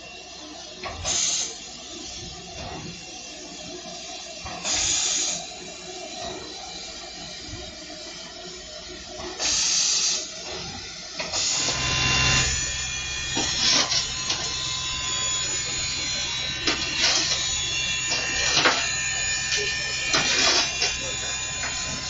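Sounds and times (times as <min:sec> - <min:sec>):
low hum: 0:11.5 - 0:22.0.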